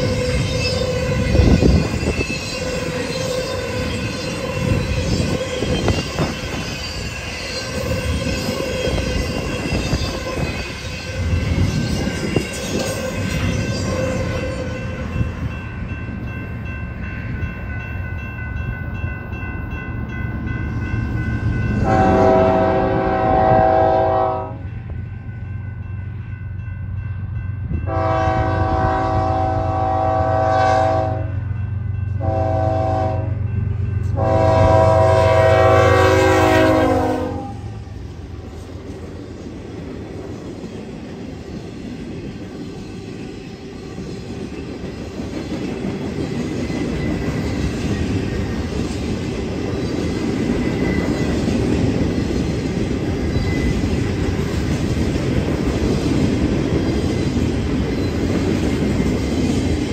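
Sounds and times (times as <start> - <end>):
train wheels rumbling on rail: 0.0 - 59.9
locomotive horn blasts: 21.8 - 24.7, 27.9 - 31.4, 32.2 - 33.4, 34.1 - 37.7.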